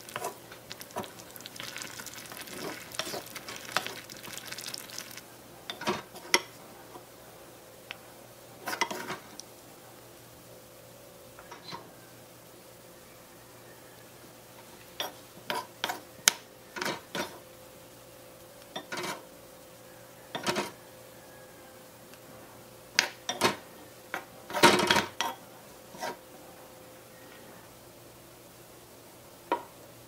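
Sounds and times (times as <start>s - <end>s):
wooden spoon scraping a wok: 0.0s - 4.0s, 8.6s - 9.3s, 15.0s - 16.0s, 18.8s - 19.2s, 24.2s - 26.2s
faint steady hum: 0.0s - 30.0s.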